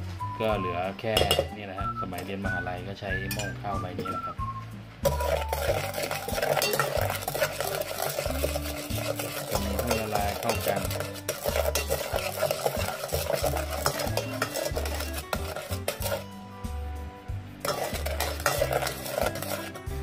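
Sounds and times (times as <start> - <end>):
paddle scraping metal pot: 5.0 - 16.4, 17.6 - 20.0
music with bass beat: 7.0 - 20.0.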